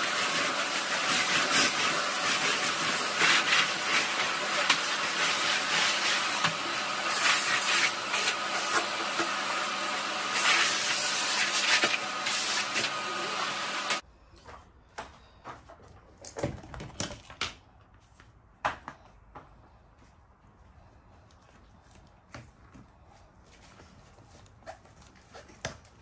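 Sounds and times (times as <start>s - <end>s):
vacuum cleaner running: 0.0s - 14.0s.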